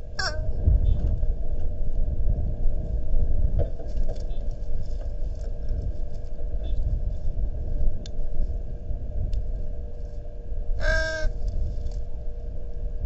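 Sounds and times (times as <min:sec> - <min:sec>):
electrical hum: 0:00.0 - 0:13.0
low microphone rumble: 0:00.0 - 0:13.0.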